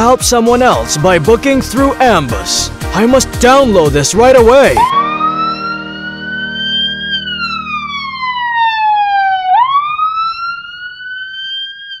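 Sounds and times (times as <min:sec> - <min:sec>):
ambulance siren wailing: 0:04.8 - 0:12.0.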